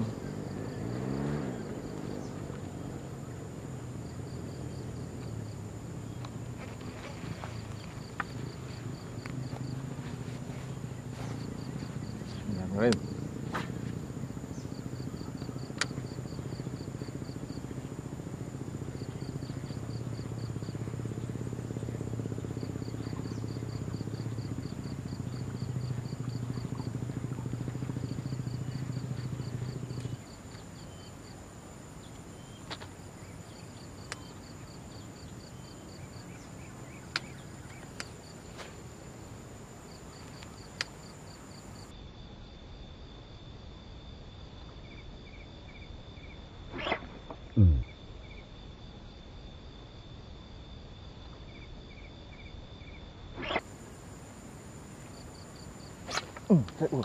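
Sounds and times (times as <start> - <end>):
insects chirping: 0.0 - 57.0
sharp clicks: 15.8 - 16.0.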